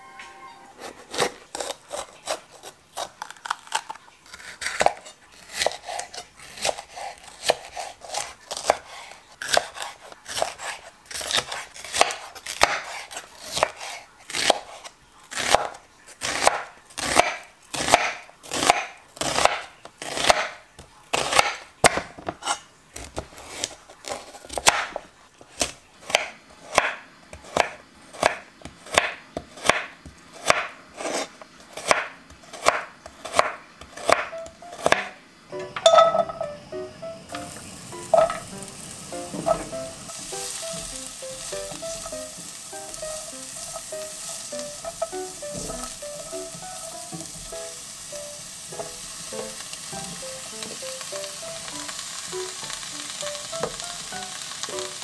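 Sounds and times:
knife chopping on wooden board: 4.4 - 14.8, 15.4 - 23.7, 25.6 - 35.1, 39.3 - 42.3, 44.8 - 46.0.

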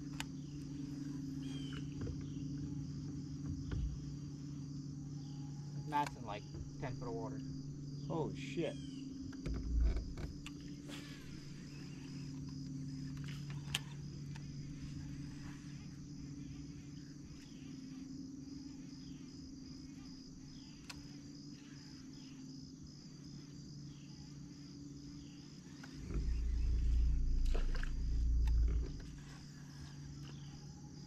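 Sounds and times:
insects buzzing: 0.0 - 31.0
low steady hum: 0.0 - 31.0
faint clicks: 20.7 - 21.1.

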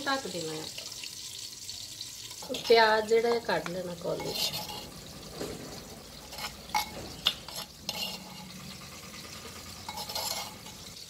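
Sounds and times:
spoon scraping clay bowl: 2.3 - 5.2, 6.1 - 11.0
spoon clinking on bowl: 9.9 - 10.9.

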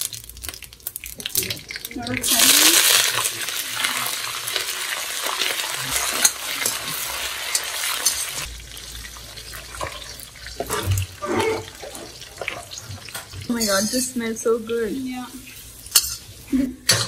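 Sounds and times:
food sizzling in pan: 0.0 - 17.0
spoon scraping a pan: 5.9 - 8.5, 9.6 - 14.3, 15.4 - 17.0.

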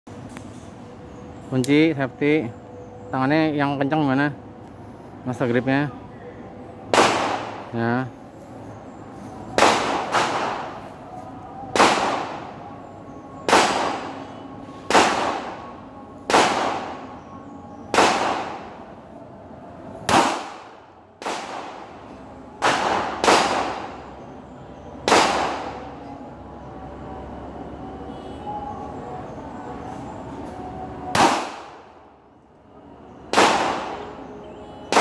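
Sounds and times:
pistol shots with echo: 6.9 - 7.8, 9.6 - 10.9, 11.7 - 12.8, 13.4 - 17.3, 17.9 - 18.9, 20.1 - 22.0, 22.6 - 24.2, 25.0 - 25.9, 31.1 - 32.0, 33.2 - 35.0.

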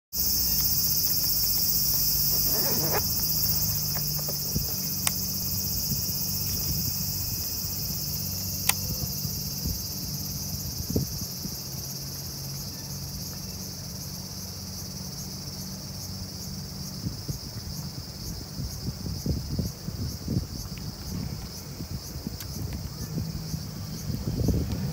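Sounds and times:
insects trilling: 0.1 - 24.9
sharp ticks: 0.3 - 5.7, 8.3 - 8.9.

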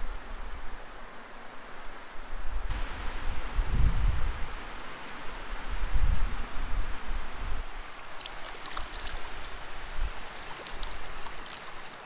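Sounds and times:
wind rumble on microphone: 0.0 - 11.8
creek water running: 0.0 - 12.0
hands splashing in water: 8.2 - 9.5, 10.3 - 12.0.

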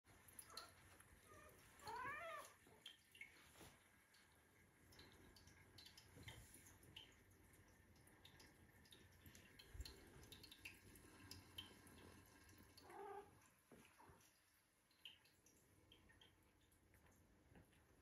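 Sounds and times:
kitten cry: 1.3 - 2.6.

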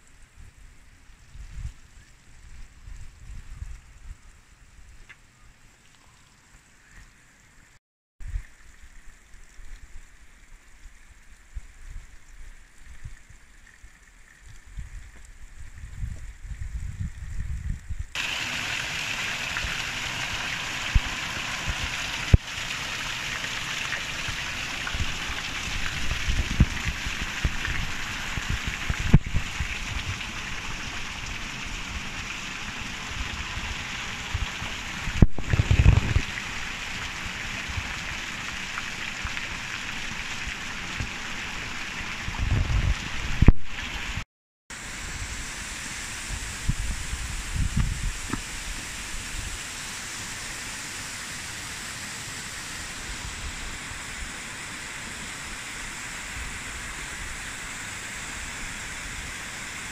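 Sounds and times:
wind buffeting microphone: 14.7 - 18.2, 24.9 - 30.3, 33.2 - 36.3, 42.3 - 43.6, 46.3 - 48.7
waterfall rushing: 18.2 - 35.2.

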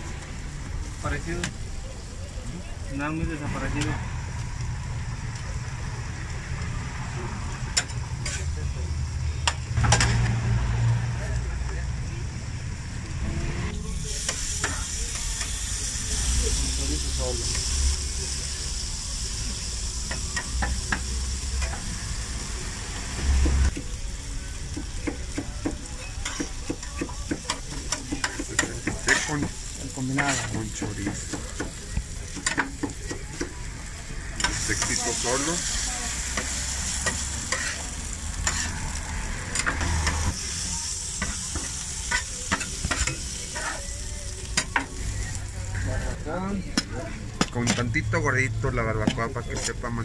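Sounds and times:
meat sizzling on a griddle: 0.0 - 50.0
metal utensils scraping griddle: 27.5 - 31.3, 36.2 - 38.9, 41.2 - 43.9.

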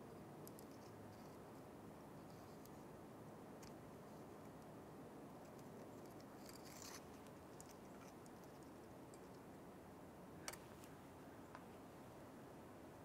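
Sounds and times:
faint rustle: 5.4 - 9.6.

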